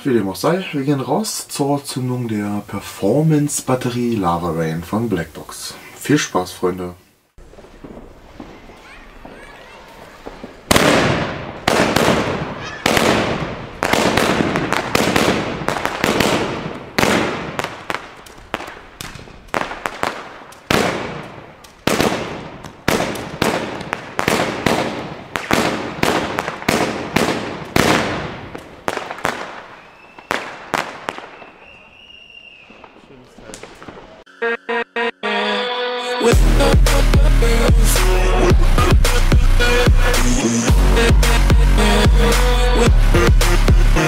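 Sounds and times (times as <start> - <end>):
firework shots firing: 7.4 - 34.2.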